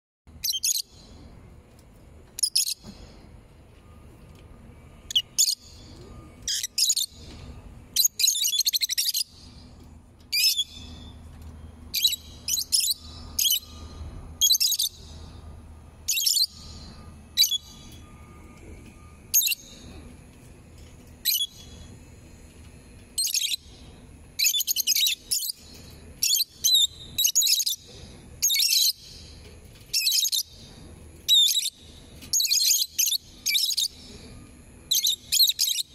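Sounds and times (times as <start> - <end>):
faint low hum: 0.3 - 35.9
lovebirds chirping: 5.1 - 7.3, 8.0 - 9.6, 11.9 - 18.2.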